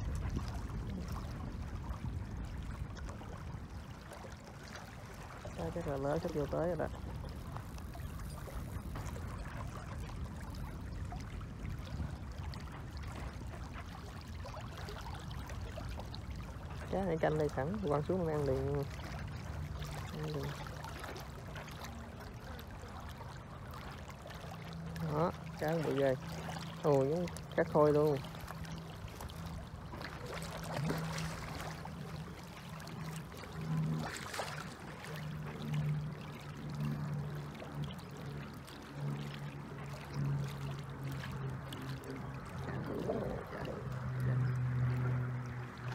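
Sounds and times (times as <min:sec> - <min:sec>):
low hum: 0:00.0 - 0:45.9
wind rumble on microphone: 0:00.0 - 0:45.9
fish splashing in water: 0:04.0 - 0:45.9
waves lapping on gravel: 0:25.0 - 0:36.2.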